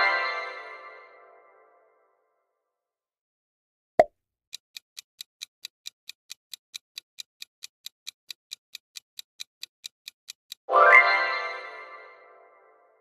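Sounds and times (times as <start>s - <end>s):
timer ticking: 4.5s - 10.7s.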